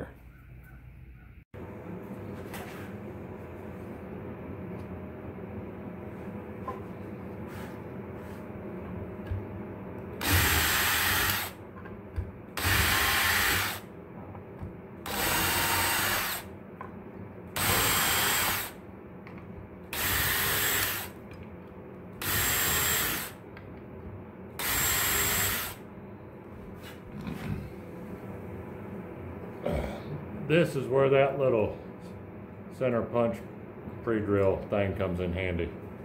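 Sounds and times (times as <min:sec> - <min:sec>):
cordless drill running: 0:10.2 - 0:11.6, 0:12.6 - 0:13.9, 0:15.0 - 0:16.5, 0:17.6 - 0:18.8, 0:19.9 - 0:21.2, 0:22.2 - 0:23.4, 0:24.6 - 0:25.8.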